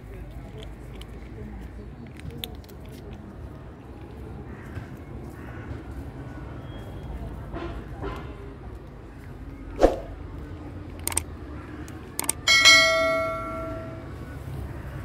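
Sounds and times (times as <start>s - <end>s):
mouse clicks: 11.0s - 11.2s, 11.9s - 12.4s
bell ding: 12.5s - 14.1s.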